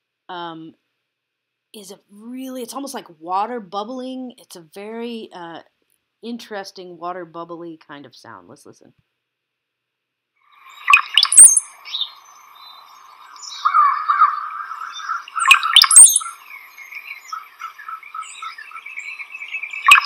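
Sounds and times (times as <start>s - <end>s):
bird song gurgling and whistling: 10.7s - 20.0s.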